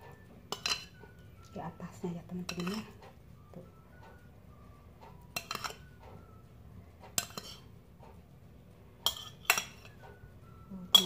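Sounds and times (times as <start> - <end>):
metal spoon clinking on bowl: 0.5 - 1.6, 2.4 - 3.0, 5.3 - 6.0, 7.1 - 7.8, 9.0 - 10.0.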